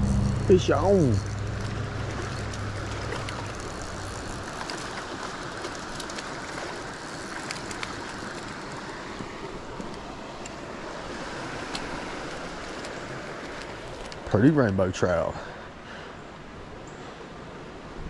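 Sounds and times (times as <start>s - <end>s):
low rumble: 0.0s - 4.9s
mountain creek rushing: 0.0s - 18.0s.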